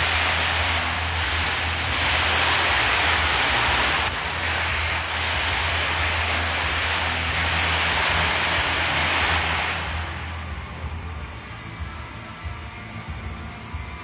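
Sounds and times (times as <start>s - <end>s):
gas jets hissing: 0.0s - 10.6s
steady low hum: 0.0s - 14.0s.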